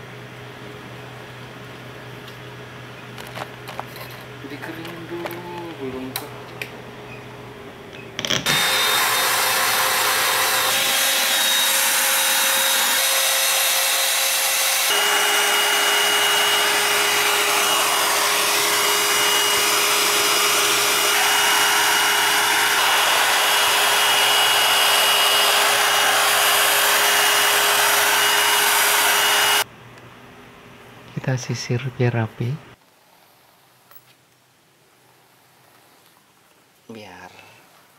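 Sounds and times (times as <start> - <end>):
hair dryer whining: 8.4 - 29.7.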